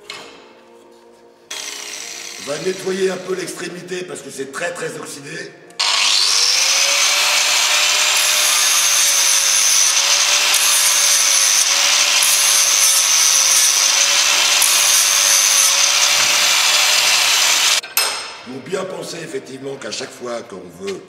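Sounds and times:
angle grinder grinding metal: 1.5s - 3.3s, 5.8s - 17.8s.

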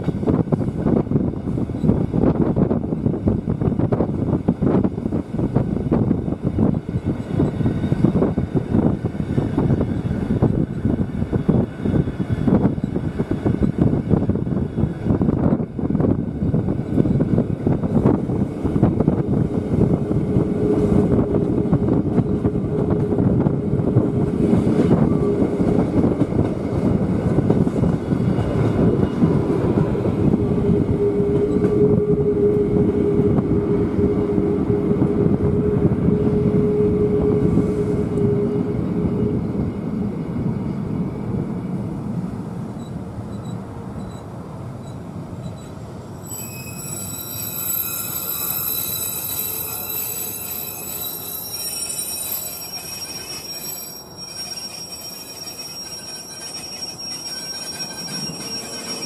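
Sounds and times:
train wheels rumbling on rail: 0.0s - 59.0s
high-pitched whining tones: 44.8s - 59.0s.

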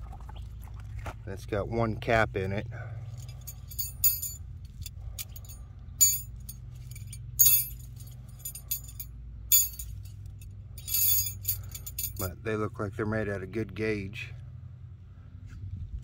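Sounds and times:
metal tent stakes clinking: 3.1s - 12.3s.

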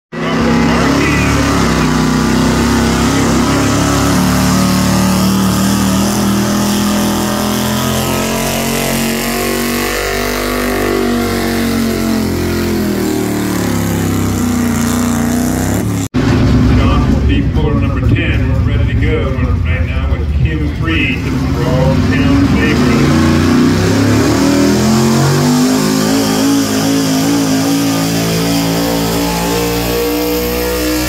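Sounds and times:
truck engine at high revs: 0.1s - 31.0s.

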